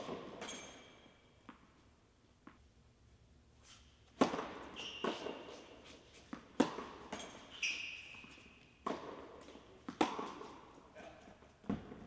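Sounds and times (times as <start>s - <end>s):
racket hitting tennis ball: 0.0s - 1.7s, 4.0s - 10.8s
shoes squeaking on court: 0.0s - 1.8s, 3.6s - 10.9s
tennis ball bouncing: 0.0s - 1.8s, 2.4s - 2.6s, 4.1s - 10.8s, 11.6s - 12.0s.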